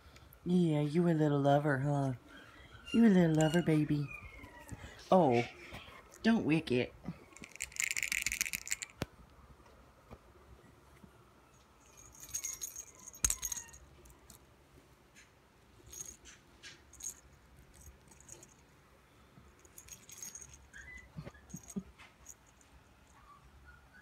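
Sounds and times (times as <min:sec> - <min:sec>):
small bell jingling: 0:07.3 - 0:08.9, 0:11.8 - 0:14.4, 0:15.8 - 0:18.7, 0:19.5 - 0:23.3.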